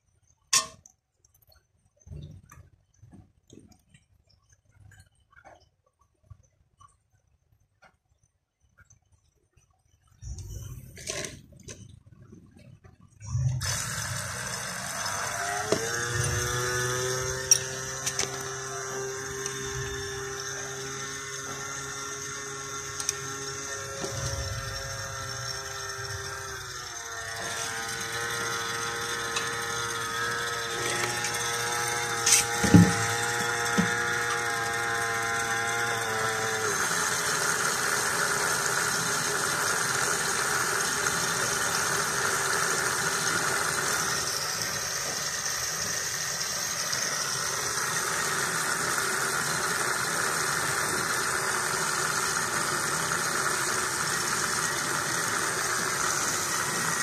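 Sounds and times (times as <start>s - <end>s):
small electric pump whining: 10.2s - 11.9s, 13.2s - 57.0s.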